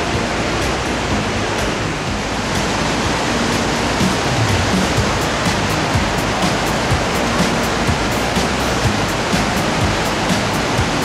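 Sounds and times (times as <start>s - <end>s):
quiet background music: 0.0s - 11.0s
waterfall rushing: 0.0s - 11.0s.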